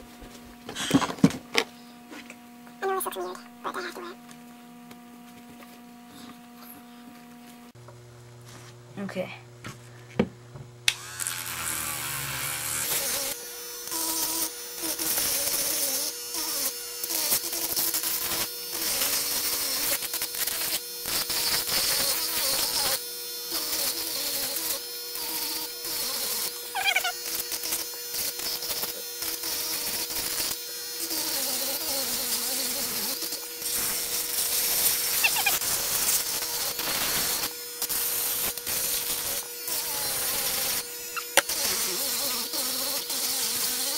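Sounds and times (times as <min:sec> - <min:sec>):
rotary tool motor whine: 0:10.9 - 0:43.9
grinding hiss on plastic: 0:11.4 - 0:43.9.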